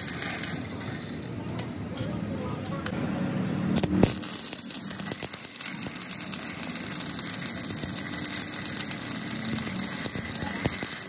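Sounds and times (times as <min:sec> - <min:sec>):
welding arc crackling: 0:00.0 - 0:01.6, 0:03.7 - 0:11.0.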